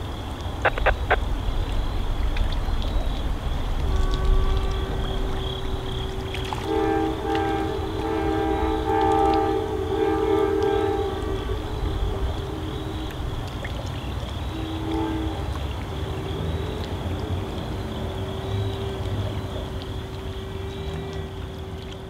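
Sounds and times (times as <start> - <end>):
steady low rumble: 0.0 - 15.6
locomotive air horn chord: 3.8 - 13.4, 14.4 - 15.8.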